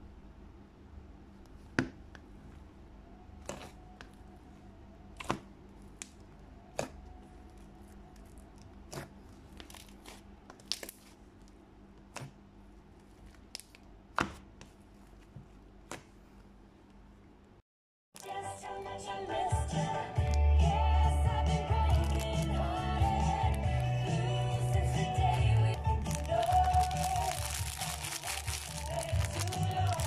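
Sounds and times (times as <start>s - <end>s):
faint steady hum: 0.0s - 17.6s
slime popping and crackling: 21.9s - 22.5s, 25.4s - 30.0s.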